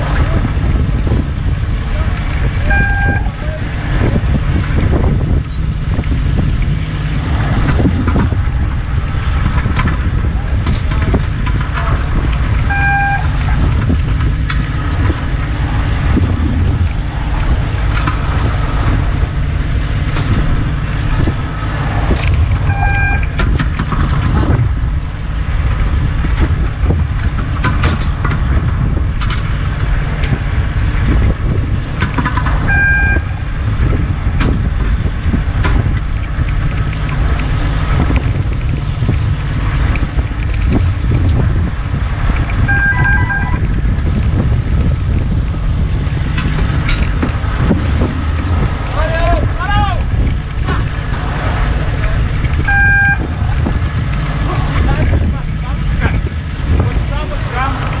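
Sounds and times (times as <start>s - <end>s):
boat engine running: 0.0s - 58.0s
wind buffeting microphone: 0.0s - 58.0s
short electronic beeps: 2.7s - 3.3s, 12.7s - 13.3s, 22.7s - 23.4s, 32.7s - 33.3s, 42.7s - 43.6s, 52.7s - 53.2s.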